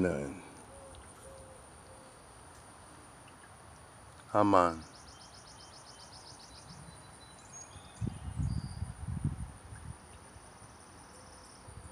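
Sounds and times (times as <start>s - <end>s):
insect chirping: 0.0s - 11.9s
bird chirps: 0.5s - 2.2s, 4.6s - 9.0s.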